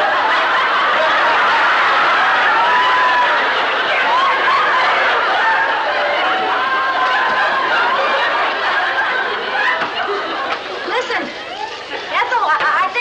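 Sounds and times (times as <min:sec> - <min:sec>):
audience laughing: 0:00.0 - 0:12.4.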